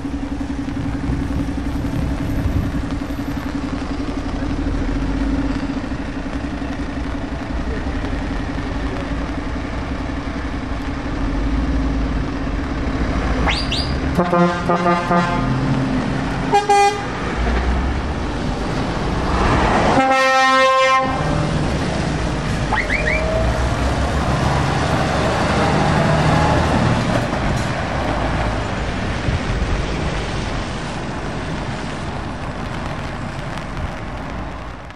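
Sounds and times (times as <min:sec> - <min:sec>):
road sweeper passing: 0:00.0 - 0:34.6
trucks driving past: 0:00.0 - 0:34.9
tyres hissing on wet road: 0:00.0 - 0:34.9
truck horn: 0:13.5 - 0:15.6, 0:16.4 - 0:17.2, 0:19.9 - 0:21.5.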